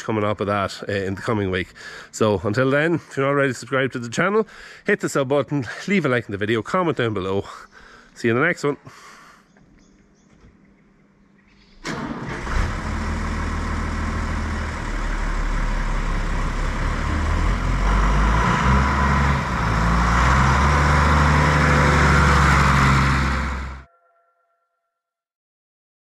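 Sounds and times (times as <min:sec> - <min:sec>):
tractor diesel engine: 0:11.8 - 0:23.9.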